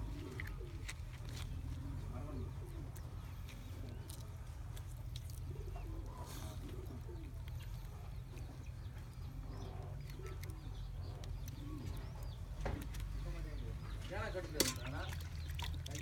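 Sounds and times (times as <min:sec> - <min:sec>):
dove cooing: 0:00.0 - 0:04.1, 0:05.5 - 0:08.6, 0:09.2 - 0:12.4.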